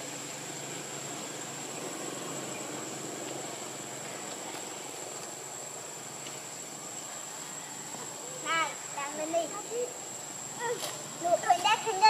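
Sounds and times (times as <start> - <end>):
even hiss: 0.0 - 12.0
high insect drone: 0.0 - 12.0.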